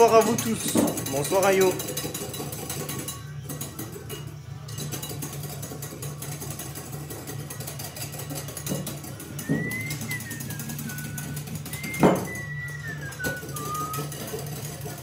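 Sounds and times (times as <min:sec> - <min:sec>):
whisk clicking against glass bowl: 0:00.0 - 0:15.0.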